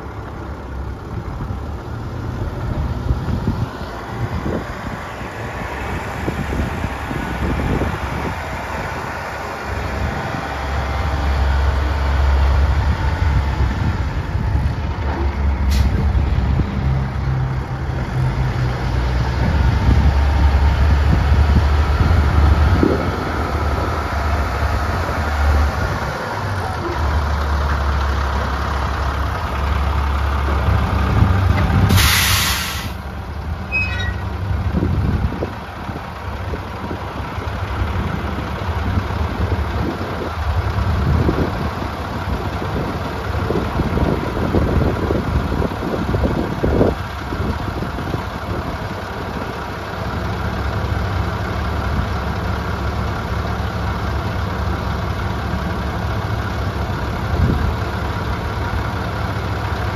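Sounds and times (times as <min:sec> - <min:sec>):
diesel truck engine running: 0:00.0 - 0:59.9
air brakes hissing: 0:15.6 - 0:16.1, 0:31.8 - 0:33.1.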